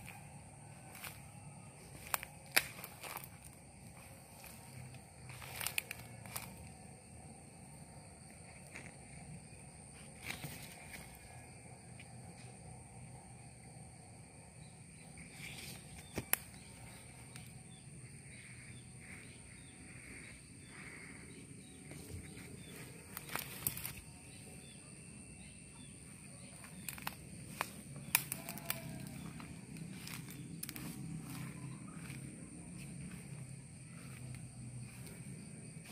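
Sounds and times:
footsteps on leaves and twigs: 0.0s - 6.8s, 8.3s - 12.6s, 15.2s - 19.9s, 21.7s - 24.6s, 25.5s - 35.9s
steady high-pitched whine: 0.0s - 35.9s
sharp crackles: 26.6s - 32.2s.

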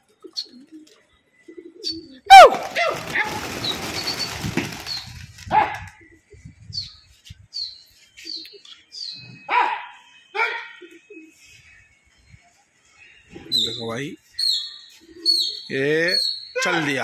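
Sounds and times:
high falling bird chirps: 0.2s - 5.4s, 6.0s - 16.7s
loud pigeon calls: 0.2s - 6.4s, 14.4s - 17.0s
pigeon wings flapping: 2.3s - 5.8s.

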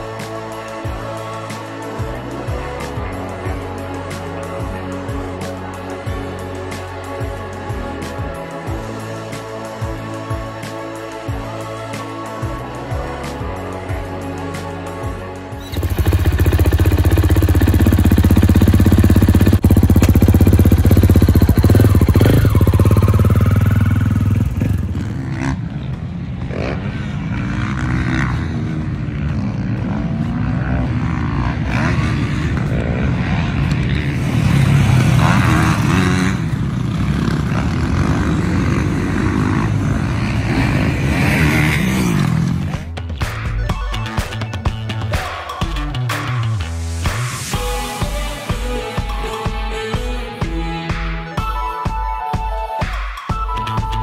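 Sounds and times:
dirt bike engine running: 15.6s - 43.0s
motocross bikes revving: 15.6s - 43.0s.

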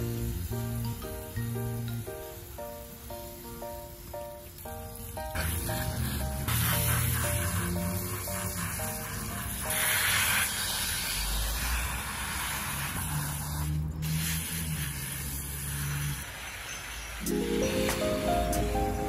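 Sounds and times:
background music: 0.0s - 10.1s, 17.2s - 19.0s
hose water spraying: 0.0s - 19.0s.

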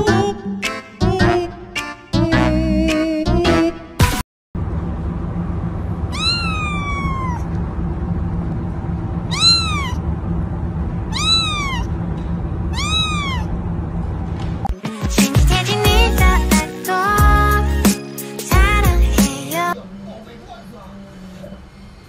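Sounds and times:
steady low hum: 4.6s - 14.7s
kitten meowing: 6.1s - 7.6s, 9.3s - 10.0s, 11.1s - 12.0s, 12.7s - 13.6s.

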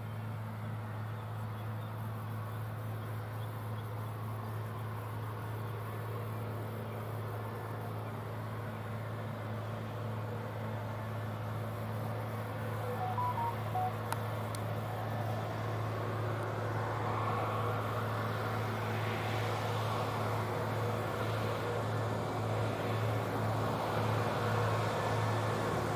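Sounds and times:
tractor diesel engine droning: 12.6s - 14.2s.

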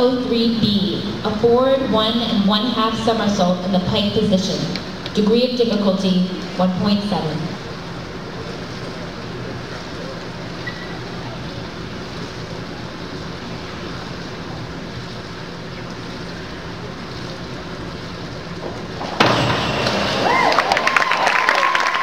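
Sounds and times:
indoor pool hall hum and hiss: 0.0s - 22.0s
crowd clapping and cheering: 19.6s - 22.0s.

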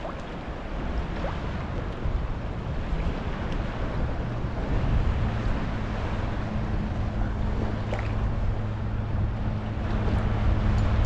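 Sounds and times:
low steady hum: 0.0s - 11.0s
waves lapping at a hull: 0.0s - 11.0s
wind buffeting microphone: 0.0s - 11.0s.

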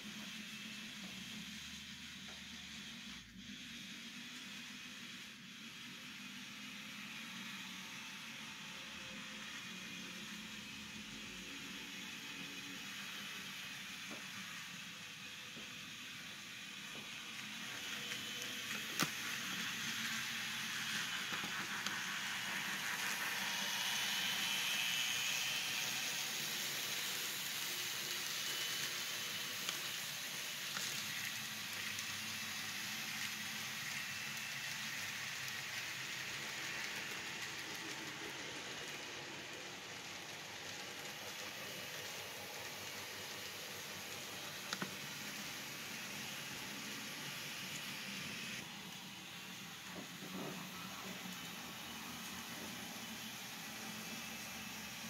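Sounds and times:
model train wheels rattling on rail: 17.1s - 47.9s.

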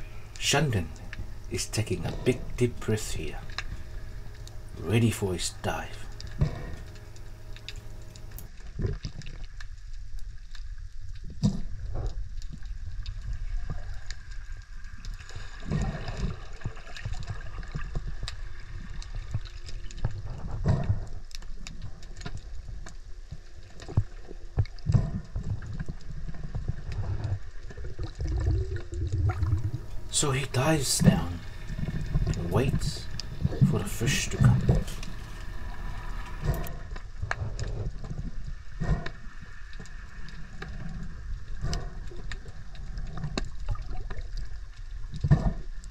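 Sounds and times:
muffled underwater water rumble: 0.0s - 45.9s.

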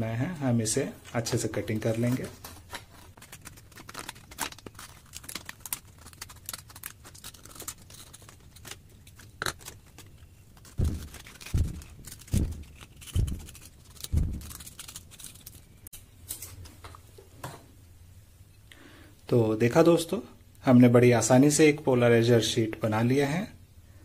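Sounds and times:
scissors cutting plastic sheet: 1.9s - 15.8s
dull thumps: 10.6s - 14.7s.

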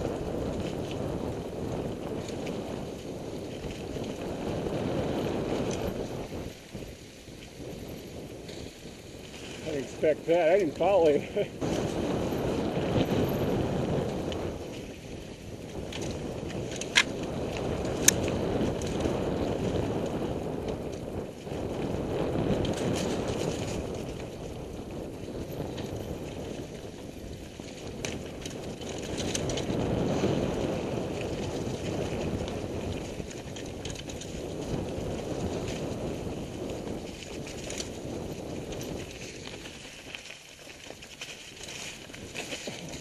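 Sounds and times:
tyres rolling on dirt: 0.0s - 43.0s
wind on microphone: 0.0s - 43.0s
sharp clicks from bike: 0.1s - 9.9s, 11.7s - 43.0s.

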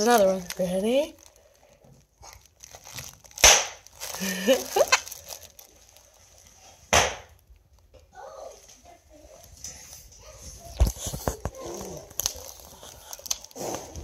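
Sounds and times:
bubble wrap squeezed: 0.0s - 7.8s, 10.6s - 14.0s
bubble wrap pops: 1.3s - 6.0s, 6.9s - 7.4s, 10.8s - 14.0s.

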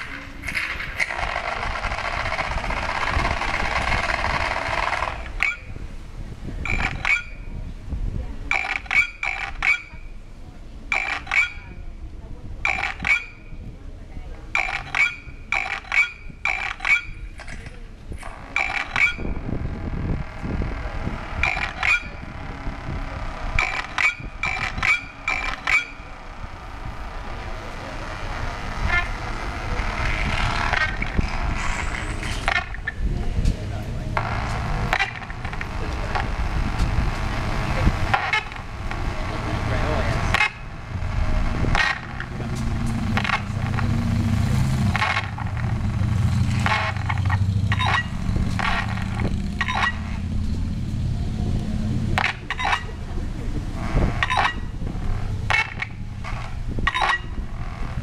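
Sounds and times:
low rumbling electronic drone: 0.0s - 6.7s, 18.3s - 58.0s
car alarm chirps: 6.6s - 7.5s, 12.6s - 13.6s, 23.6s - 26.1s, 47.7s - 48.1s
hazy alarm-like sound: 18.6s - 32.9s.

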